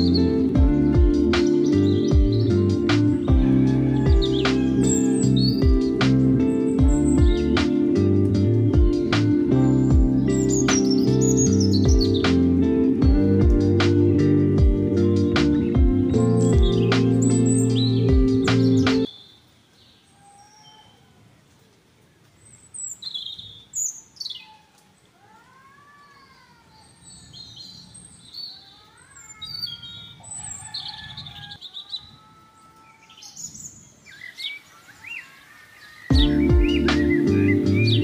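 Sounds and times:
birds whistling: 0.0s - 13.9s, 15.2s - 21.1s, 26.8s - 32.1s, 32.9s - 38.0s
birds chirping: 0.0s - 38.0s.

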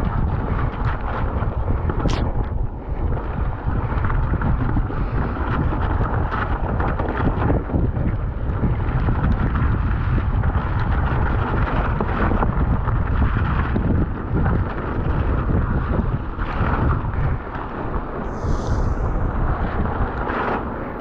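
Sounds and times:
bike tyres rattling over stones: 0.0s - 18.2s
wind buffeting microphone: 0.0s - 21.0s.

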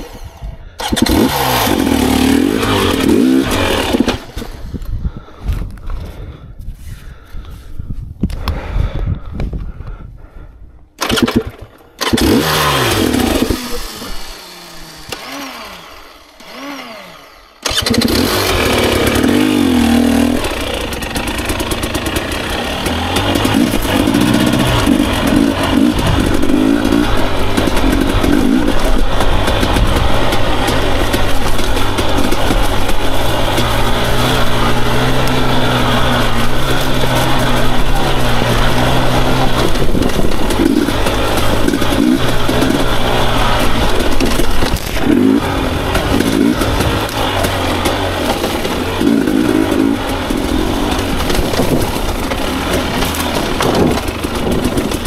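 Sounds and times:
dirt bike engine revving: 0.0s - 4.7s, 11.0s - 55.0s.

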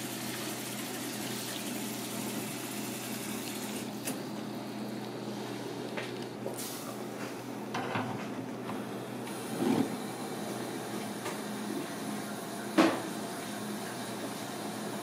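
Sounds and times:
low kitchen hum: 0.0s - 15.0s
gas burner hissing: 9.2s - 15.0s.

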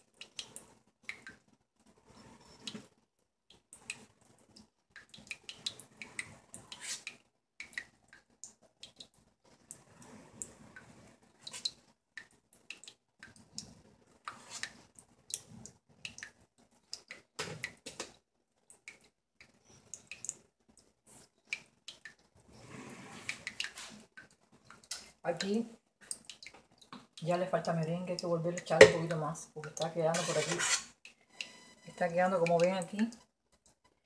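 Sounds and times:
plastic comb scraping frosting: 30.1s - 30.9s.

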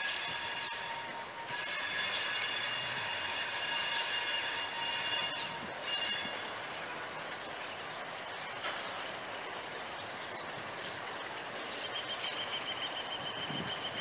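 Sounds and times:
high wavering squeal: 0.0s - 6.5s
train engine and wheels rolling: 0.0s - 14.0s.

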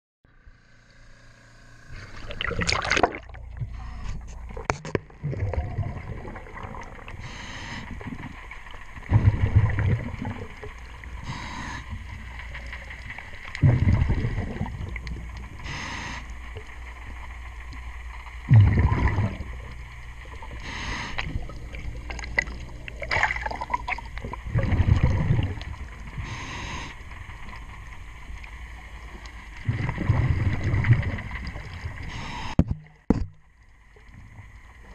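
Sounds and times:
exhaled bubbles rumbling: 2.0s - 34.9s
water splashing and gurgling: 2.0s - 34.9s
regulator inhalation hiss: 7.2s - 8.3s, 11.1s - 12.3s, 15.6s - 16.6s, 20.4s - 21.5s, 26.2s - 27.2s, 32.0s - 32.6s.

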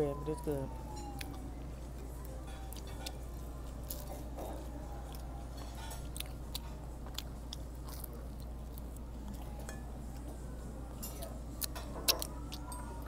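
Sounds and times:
steady low hum: 0.0s - 13.0s
person chewing food: 1.1s - 1.4s, 2.2s - 9.7s, 11.2s - 13.0s.

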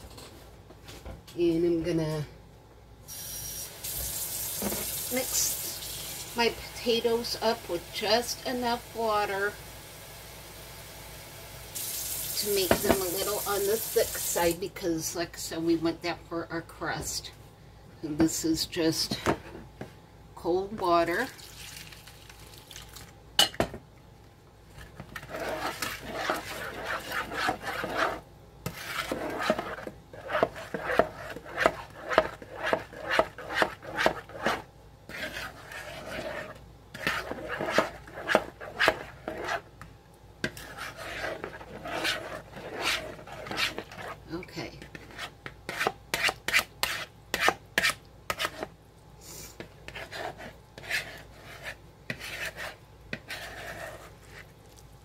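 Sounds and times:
metal spoon scraping a bowl: 25.2s - 39.6s, 40.5s - 44.2s, 49.9s - 54.4s.

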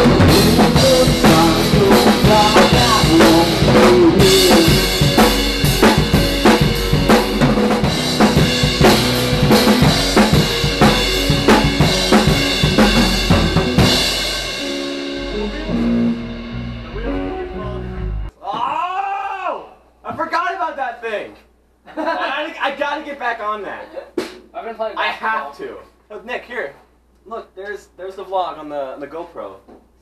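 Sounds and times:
band playing: 0.0s - 18.3s
drum kit beat: 0.0s - 18.3s, 24.1s - 24.5s.

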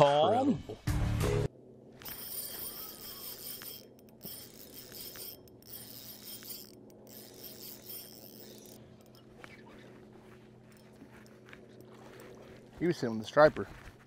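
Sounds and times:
fishing reel ratcheting whir: 2.0s - 9.3s.

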